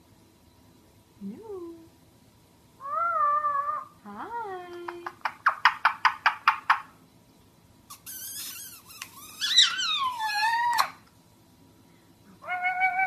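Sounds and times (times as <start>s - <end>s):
parrot screeching and chattering: 2.8s - 4.0s, 7.9s - 11.0s.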